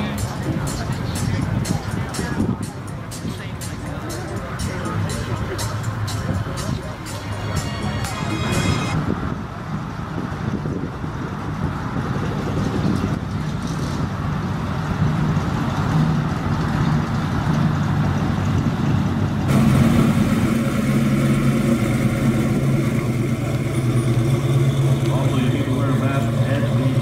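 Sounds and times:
car engine low rumble pulling away: 0.0s - 27.0s
car engine rolling past: 0.0s - 27.0s.

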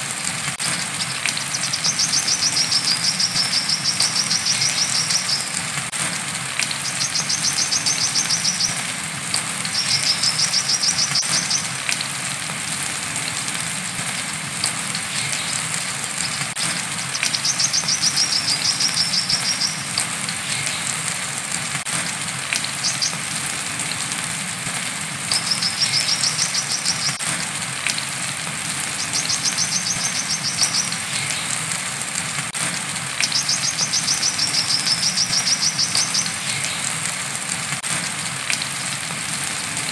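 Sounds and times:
rain falling: 0.0s - 39.9s
bird singing high trills: 1.0s - 5.6s, 17.0s - 19.9s, 25.4s - 27.2s.

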